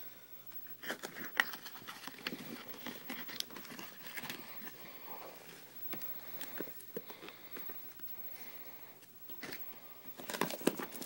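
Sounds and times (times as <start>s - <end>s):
cardboard packaging rustling and scraping: 0.7s - 7.0s, 9.3s - 11.0s.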